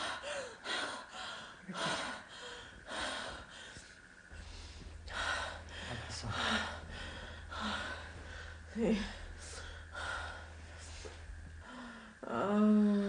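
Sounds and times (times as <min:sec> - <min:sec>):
steady low hum: 0:00.0 - 0:13.0
woman breathing hard: 0:00.0 - 0:13.0
woman moaning: 0:06.4 - 0:10.5, 0:11.6 - 0:13.0.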